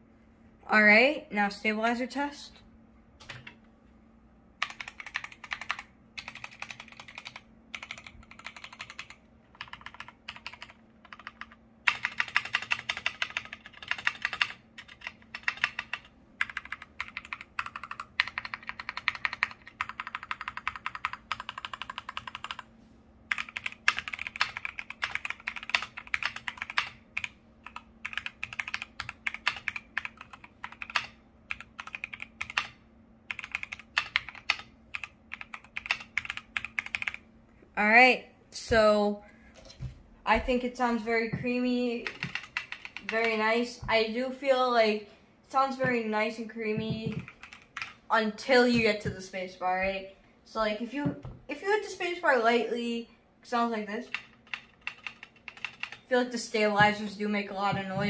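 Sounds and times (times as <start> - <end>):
mechanical keyboard typing: 4.6 - 22.7, 23.3 - 37.2, 42.0 - 43.4, 46.7 - 48.0, 54.1 - 56.1.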